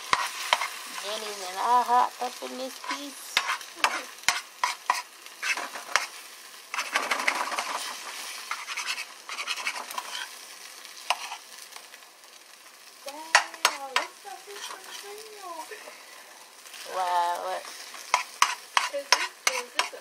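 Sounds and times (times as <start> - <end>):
spatula scraping pan: 0.0 - 11.7, 13.2 - 15.9, 16.5 - 20.0
eggs sizzling in frying pan: 0.0 - 20.0
spatula tapping pan: 2.8 - 10.3, 11.0 - 11.4, 13.1 - 15.1, 18.0 - 20.0.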